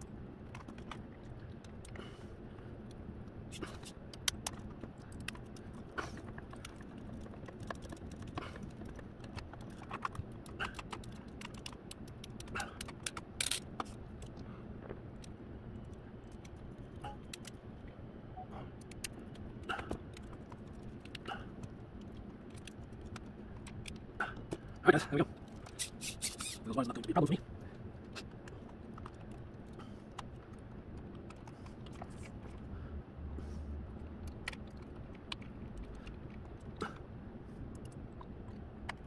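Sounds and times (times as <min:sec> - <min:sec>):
low steady hum: 0:00.0 - 0:39.0
plastic parts clicking and tapping: 0:04.1 - 0:14.4
screwdriver turning a screw: 0:25.6 - 0:27.0.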